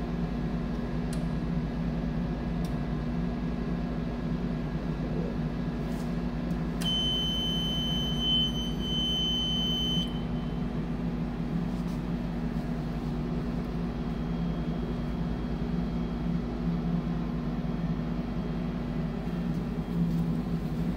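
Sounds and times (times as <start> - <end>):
electrical hum: 0.0 - 20.9
high-pitched electronic beep: 6.9 - 10.2.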